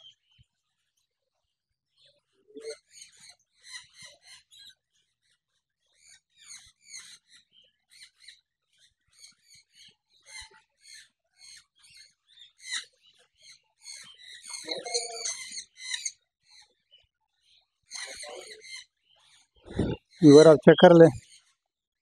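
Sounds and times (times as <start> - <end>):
parrots chattering: 14.5 - 16.1.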